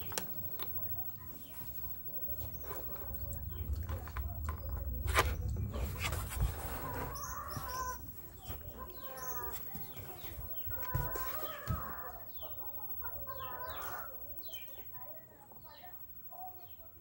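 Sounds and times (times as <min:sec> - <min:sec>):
low microphone rumble: 0:01.6 - 0:10.7
chickens clucking: 0:01.9 - 0:14.9.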